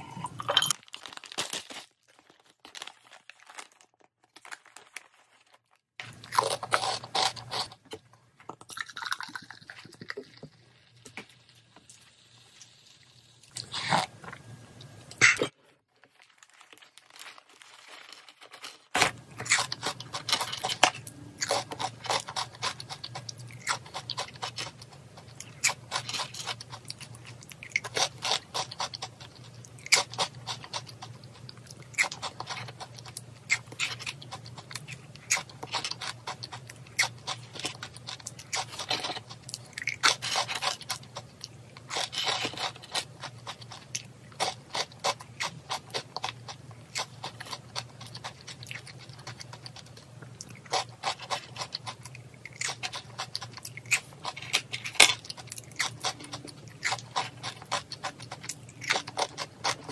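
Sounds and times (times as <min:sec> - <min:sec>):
crunching and chewing snacks: 0:00.0 - 0:59.9
foil snack bag crinkling: 0:00.8 - 0:07.8, 0:15.9 - 0:50.0.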